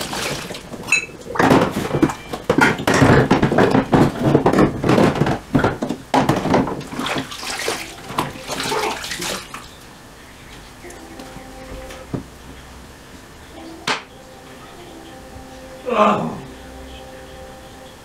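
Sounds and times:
water splashing in sink: 0.0 - 9.9
crockery knocking: 0.8 - 7.0.

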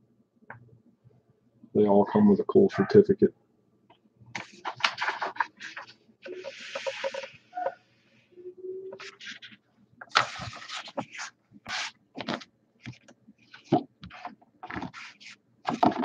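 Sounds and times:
paper rustling: 4.4 - 7.3, 9.0 - 16.0.

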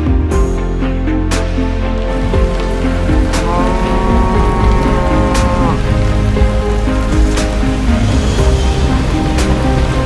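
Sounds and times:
steady rain falling: 1.7 - 10.0
music of held bending notes: 2.1 - 10.0.

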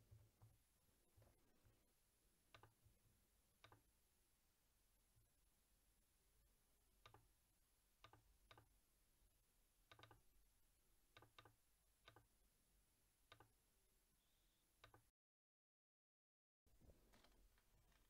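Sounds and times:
computer mouse clicks: 2.5 - 2.8, 7.0 - 7.3, 9.9 - 10.2, 11.1 - 12.3, 13.3 - 13.5, 14.8 - 15.1.

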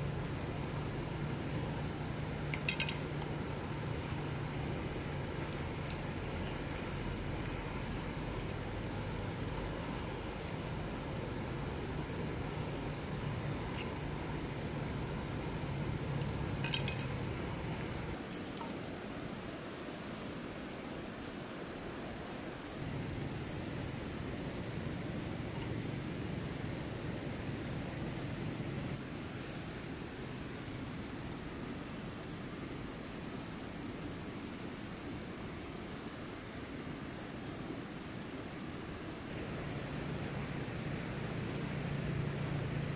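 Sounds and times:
high-pitched insect drone: 0.0 - 19.5
sharp click: 2.5 - 3.0, 16.6 - 17.1
flowing river water: 39.3 - 42.9.

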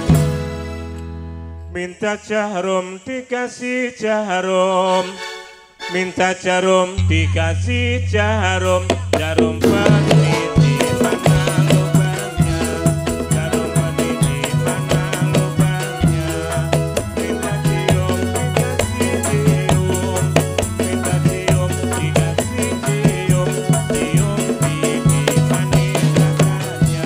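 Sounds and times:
jingling percussion: 0.0 - 0.8, 8.7 - 27.0
low repeating drumbeat: 7.0 - 27.0.

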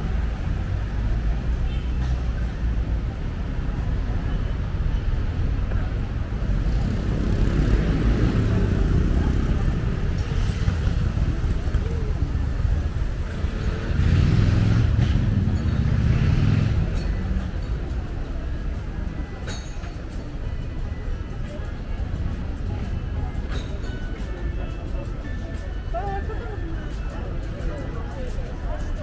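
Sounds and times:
cars driving past: 6.2 - 19.5.

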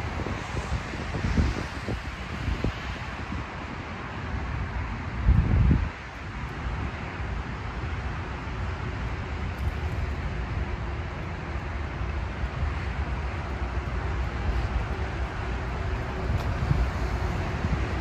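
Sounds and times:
distant motorway traffic hum: 0.0 - 18.0
wind rumbling on microphone: 0.0 - 18.0.

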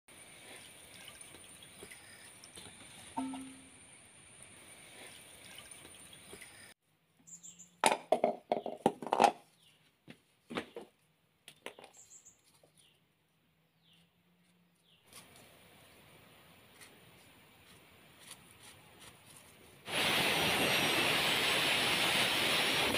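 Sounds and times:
coconut shells knocking on concrete: 7.8 - 9.4.

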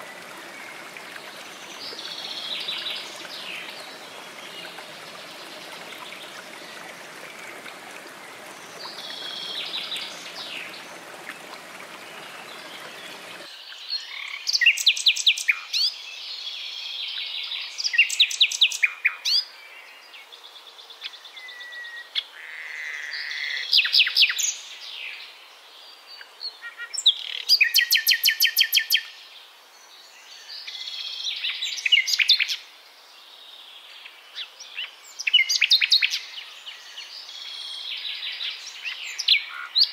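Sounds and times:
waterfall splashing into stream: 0.0 - 13.5.

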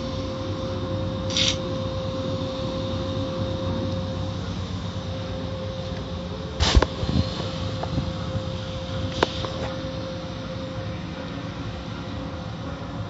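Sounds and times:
machinery hum: 0.0 - 13.0
water and foam spraying: 6.6 - 7.7.

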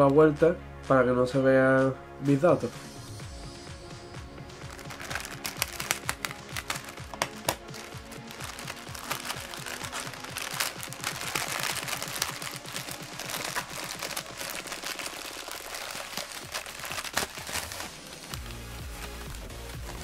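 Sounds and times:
plastic bag crinkling and tearing: 4.6 - 20.0.

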